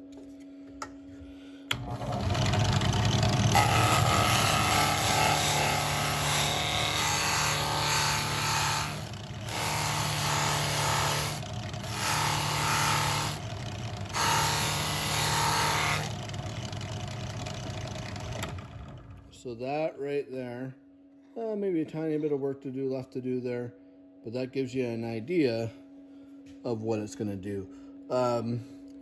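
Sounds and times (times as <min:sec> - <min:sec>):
drill press motor hum: 0:00.1 - 0:19.4.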